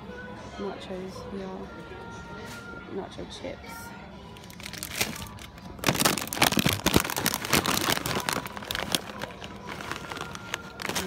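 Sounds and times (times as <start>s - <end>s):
plastic bag crinkling: 4.4s - 11.0s.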